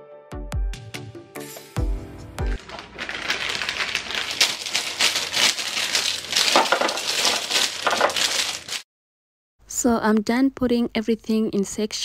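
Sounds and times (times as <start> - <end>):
plastic bag crinkling: 2.5 - 8.8
peppers knocking into plastic bin: 2.6 - 8.8.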